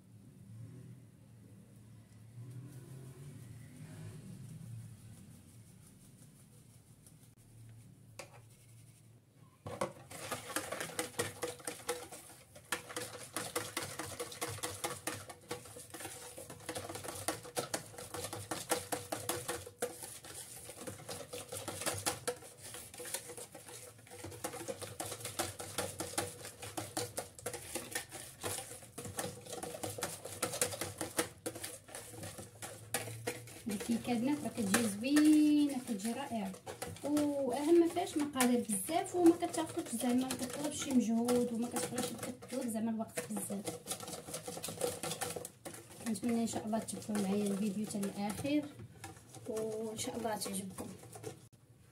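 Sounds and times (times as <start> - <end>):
whisk beating batter in bowl: 9.7 - 51.6.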